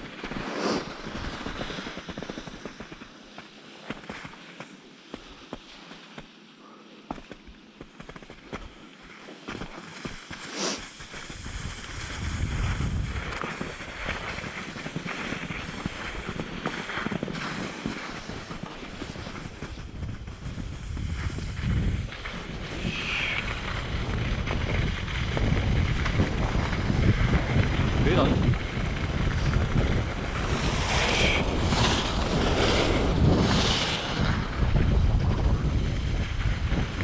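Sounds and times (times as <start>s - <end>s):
wind buffeting microphone: 11.4s - 37.0s.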